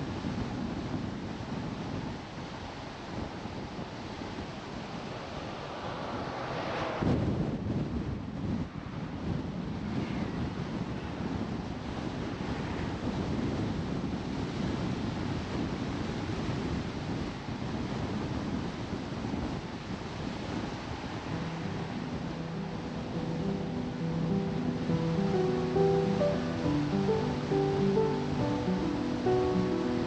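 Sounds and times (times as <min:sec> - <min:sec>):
wind rush on microphone: 0:00.0 - 0:30.0
car driving on road: 0:03.8 - 0:11.5
faint music with held notes: 0:21.1 - 0:30.0.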